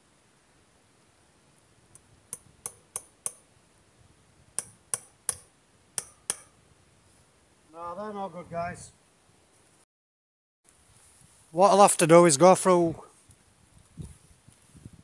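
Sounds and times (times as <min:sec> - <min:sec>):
hammer tapping nail into wood: 0:02.3 - 0:03.4, 0:04.6 - 0:06.5.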